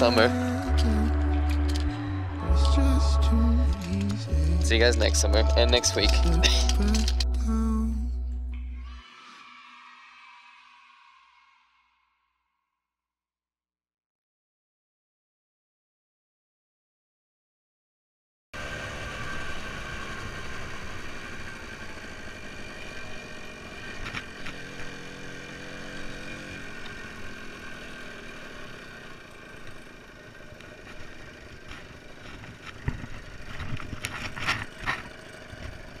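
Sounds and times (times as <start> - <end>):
moped engine running: 0.0 - 7.6, 18.6 - 36.0.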